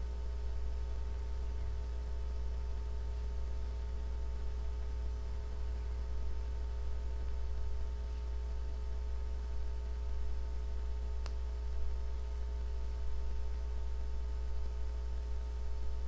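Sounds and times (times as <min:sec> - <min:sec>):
low electrical hum: 0:00.0 - 0:16.0
light click: 0:11.2 - 0:11.4.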